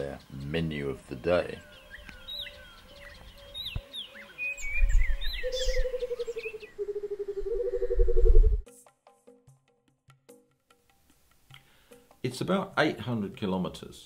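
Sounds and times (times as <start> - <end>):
birds chirping: 0.0 - 8.6
pulsing bird trill: 5.1 - 8.5
deep rumble: 7.9 - 8.6.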